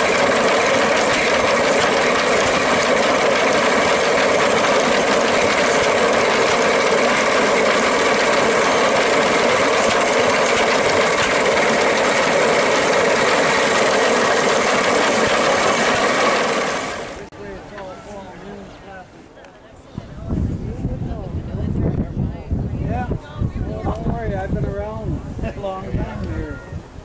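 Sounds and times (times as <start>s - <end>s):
threshing machine rattling: 0.0s - 17.3s.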